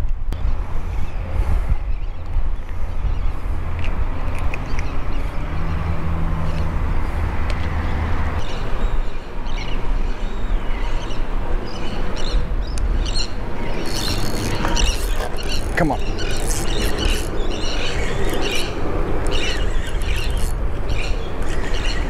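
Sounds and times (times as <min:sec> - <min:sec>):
wind rumbling on microphone: 0:00.0 - 0:22.0
bird chirping: 0:08.4 - 0:22.0.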